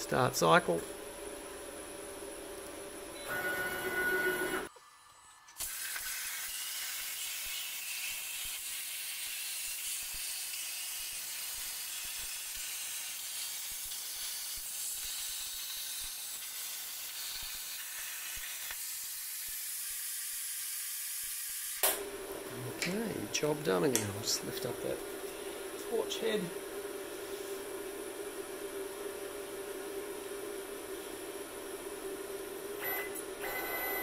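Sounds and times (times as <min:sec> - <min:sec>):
plasma cutter torch hissing: 0:05.6 - 0:21.8.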